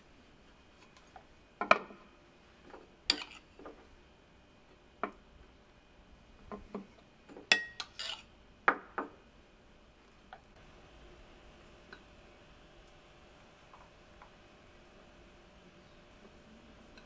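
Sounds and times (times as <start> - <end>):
knife clinking ceramic bowl: 3.1 - 3.4, 7.5 - 8.2
knife scraping ceramic plate: 3.1 - 3.5, 7.7 - 8.3.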